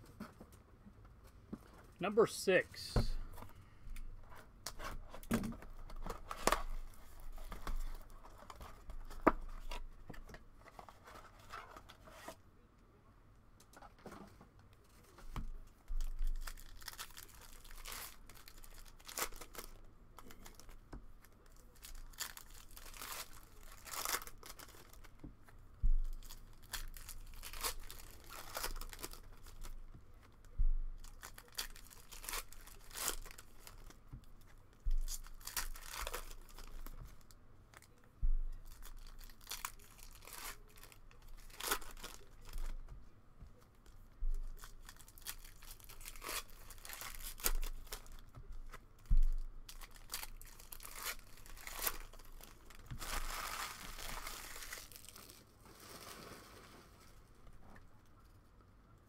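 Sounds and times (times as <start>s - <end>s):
wrappers tearing and crinkling: 16.0s - 25.2s, 26.1s - 38.0s, 38.6s - 42.8s, 43.8s - 57.0s.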